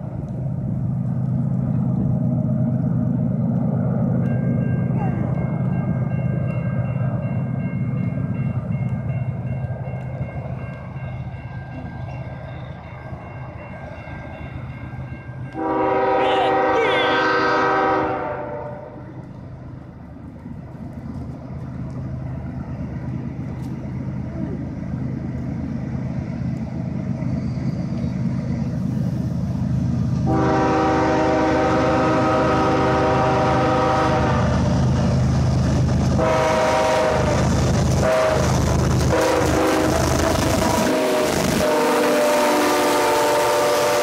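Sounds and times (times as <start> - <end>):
freight train rumbling: 0.0 - 44.0
locomotive air horn: 15.6 - 19.1, 30.2 - 34.6, 36.2 - 38.5, 39.1 - 44.0.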